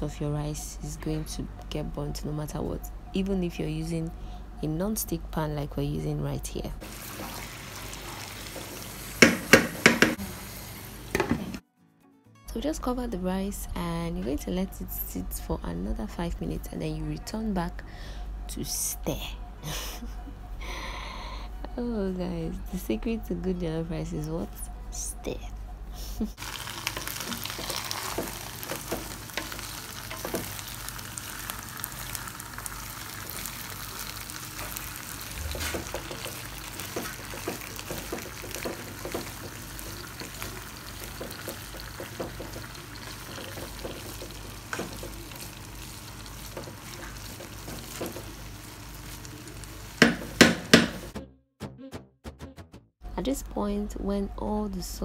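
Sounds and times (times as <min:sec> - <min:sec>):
rice sizzling: 0:06.8 - 0:11.6, 0:26.4 - 0:51.2
spoon knocking on pan: 0:08.5 - 0:10.2, 0:26.8 - 0:30.8, 0:35.5 - 0:45.5, 0:46.4 - 0:48.5, 0:50.0 - 0:51.2
wooden spoon scraping a pan: 0:26.4 - 0:31.0, 0:34.5 - 0:51.1.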